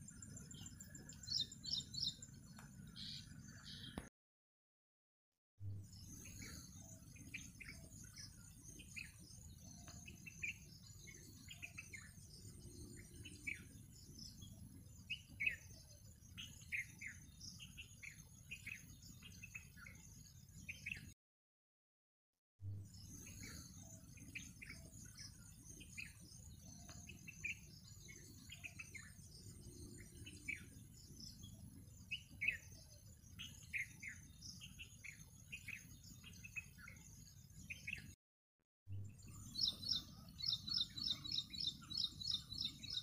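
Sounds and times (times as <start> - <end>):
small birds chirping: 0.0 - 4.1, 5.8 - 21.2, 22.8 - 38.2, 39.0 - 43.0.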